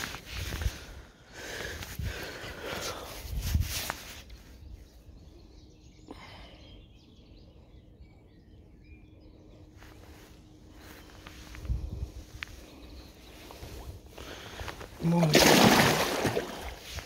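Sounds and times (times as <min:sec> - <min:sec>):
lakeside ambience: 0:00.0 - 0:17.0
faint bird chirps: 0:04.0 - 0:15.0.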